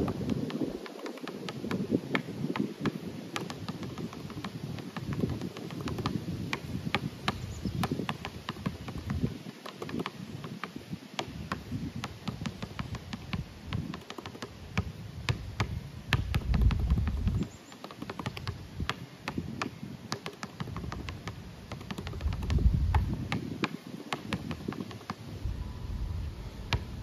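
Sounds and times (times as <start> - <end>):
basketball bouncing on concrete: 0.0 - 0.8, 1.5 - 25.1
low rumble: 25.4 - 27.0.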